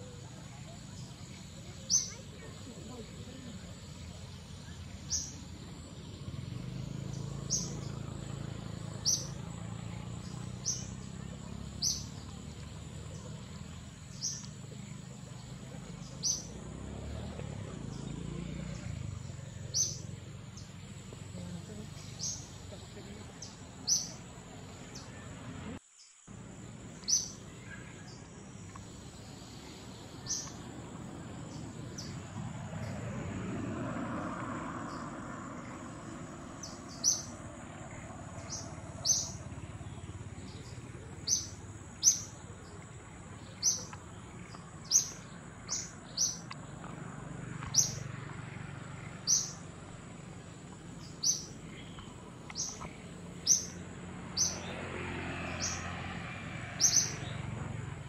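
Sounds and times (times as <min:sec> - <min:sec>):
bird chirping: 0:00.0 - 0:33.0, 0:34.8 - 0:48.1, 0:48.7 - 0:55.9, 0:56.7 - 0:57.6
high-pitched insect trill: 0:27.0 - 0:32.2.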